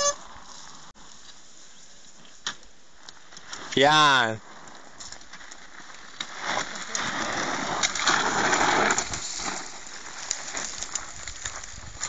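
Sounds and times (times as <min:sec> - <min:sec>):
tyre spitting gravel: 0:02.1 - 0:12.0
stones ticking: 0:02.4 - 0:12.0.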